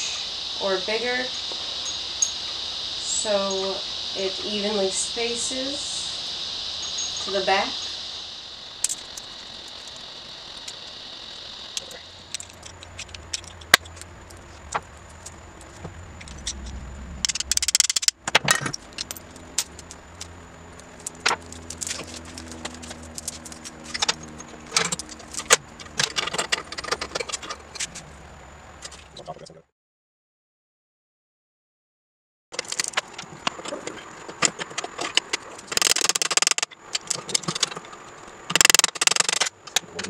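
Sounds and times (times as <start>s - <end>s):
metal parts clicking: 8.8s - 10.0s, 11.8s - 27.9s, 34.4s - 37.9s, 38.5s - 39.8s.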